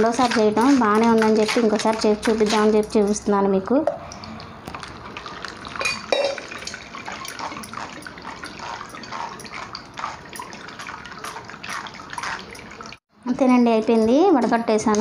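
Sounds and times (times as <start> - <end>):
juice trickling: 4.1 - 13.0
juice pouring into strainer: 4.2 - 13.0.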